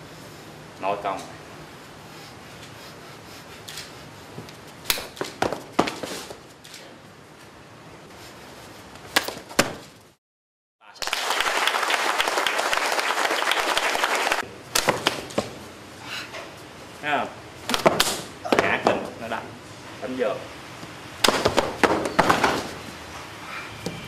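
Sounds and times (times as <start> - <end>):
applause: 10.9 - 14.4
hand slaps on body: 14.7 - 15.5, 17.7 - 18.3.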